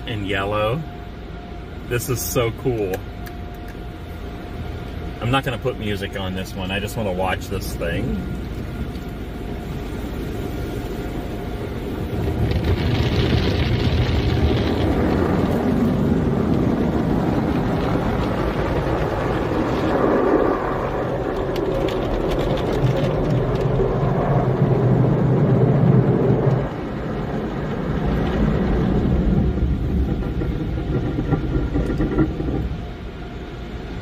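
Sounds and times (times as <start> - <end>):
car wash water jets: 0.0 - 34.0.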